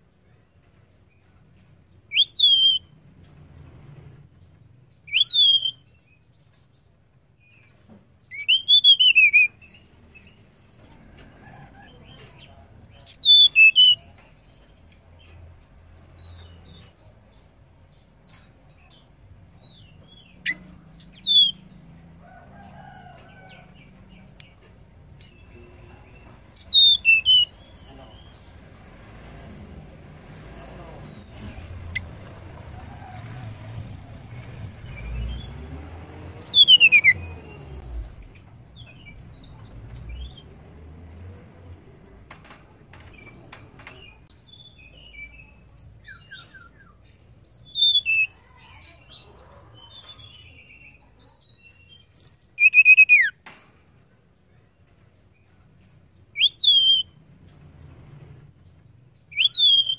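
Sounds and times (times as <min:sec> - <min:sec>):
bird whistled calls: 0:02.1 - 0:02.9, 0:05.1 - 0:05.8, 0:08.3 - 0:09.6, 0:12.8 - 0:14.0, 0:26.3 - 0:27.5, 0:36.3 - 0:37.2, 0:52.2 - 0:53.4, 0:56.4 - 0:57.1, 0:59.3 - 0:59.9.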